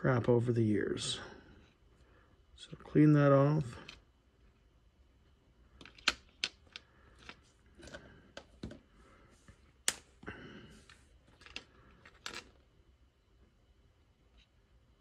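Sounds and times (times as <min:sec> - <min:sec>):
plastic parts clicking and tapping: 0:05.8 - 0:08.8.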